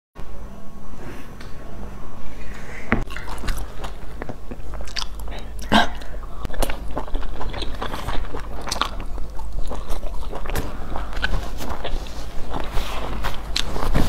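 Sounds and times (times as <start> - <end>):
mouth clicks and crackles: 3.0 - 14.0
person chewing: 3.0 - 14.0.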